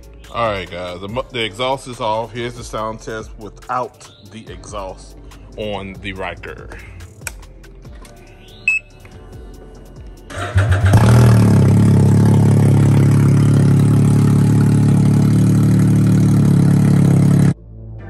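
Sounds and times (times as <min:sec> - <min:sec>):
short beep: 0:08.6 - 0:08.9
engine cranking: 0:10.3 - 0:14.4
loud engine idling: 0:10.3 - 0:17.5.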